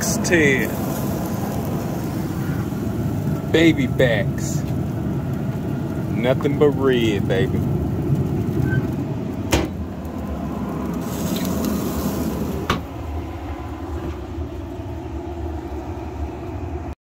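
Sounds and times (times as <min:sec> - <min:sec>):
steady low rumble: 0:00.0 - 0:17.0
metal grill lid shutting: 0:08.6 - 0:09.8, 0:11.1 - 0:12.9.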